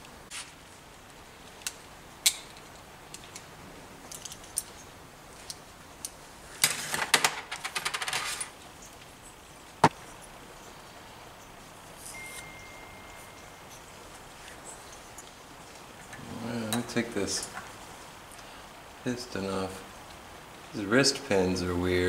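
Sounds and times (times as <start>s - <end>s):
small metal parts clinking: 1.6s - 8.9s.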